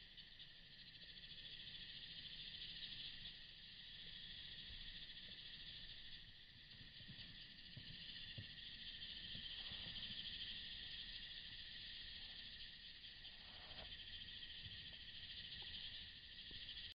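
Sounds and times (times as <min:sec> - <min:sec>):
insects chirping: 0:00.0 - 0:17.0.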